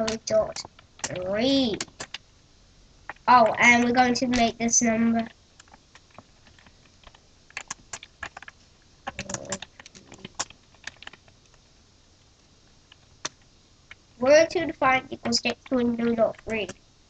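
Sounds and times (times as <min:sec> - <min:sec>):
keyboard typing clicks: 0:00.0 - 0:02.2, 0:05.2 - 0:11.6.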